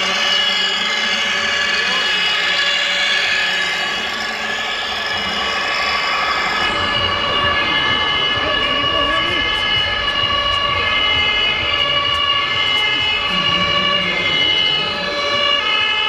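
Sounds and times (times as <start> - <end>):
crowd chatter in large hall: 0.0 - 16.0
high-pitched motor whine: 0.0 - 16.0
steady tones: 0.0 - 16.0.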